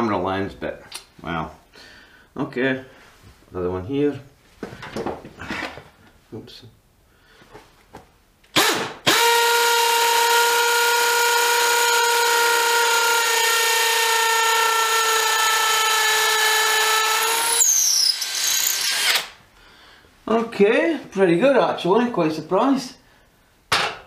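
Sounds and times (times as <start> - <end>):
impact driver drilling into brick: 8.6 - 19.4.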